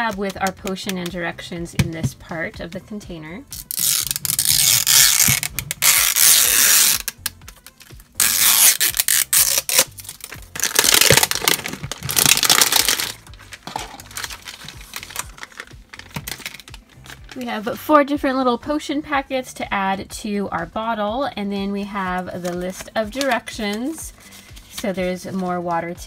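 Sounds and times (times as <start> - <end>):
plastic packaging crinkling and tearing: 3.5 - 17.5.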